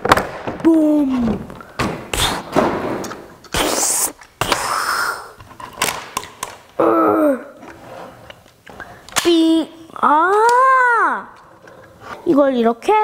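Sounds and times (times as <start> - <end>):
child making mouth sound effects: 3.5 - 5.4, 6.8 - 7.6
plastic toy clicks and knocks: 5.4 - 6.6.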